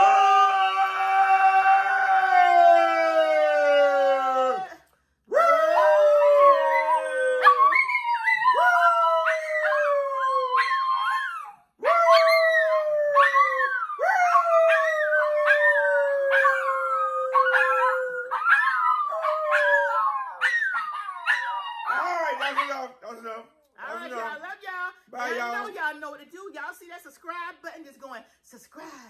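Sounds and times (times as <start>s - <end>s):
people howling: 0.0s - 22.5s
dogs howling: 0.0s - 22.8s.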